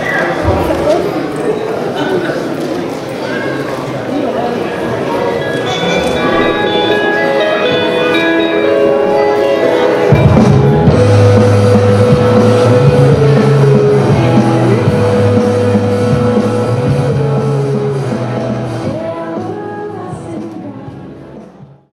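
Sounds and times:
music with held notes: 0:05.5 - 0:21.8
strong bass line: 0:10.1 - 0:19.0.

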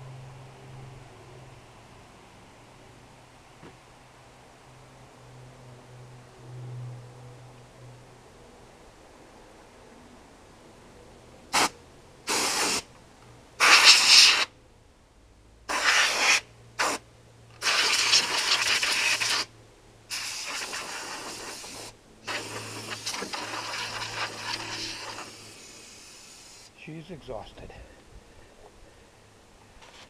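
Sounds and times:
compressed air blow gun hissing: 0:12.3 - 0:12.9, 0:13.6 - 0:14.5, 0:15.7 - 0:17.0, 0:17.6 - 0:19.5, 0:20.1 - 0:26.8.

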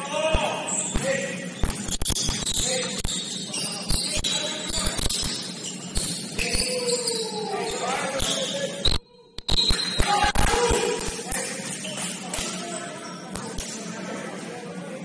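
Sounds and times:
shoes squeaking on court: 0:00.6 - 0:08.8, 0:11.4 - 0:14.0.

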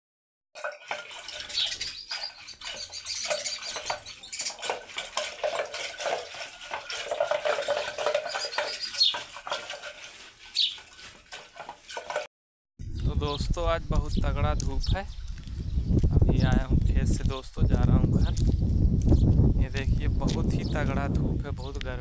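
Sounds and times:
curd sloshing: 0:00.6 - 0:12.3.

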